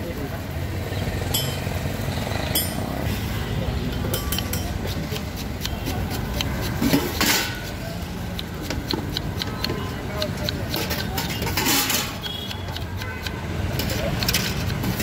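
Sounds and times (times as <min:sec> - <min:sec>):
low street rumble: 0:00.0 - 0:15.0
metal clinks and taps: 0:01.3 - 0:01.7, 0:02.6 - 0:03.0
grater rasping scrape: 0:04.5 - 0:07.8, 0:08.4 - 0:15.0.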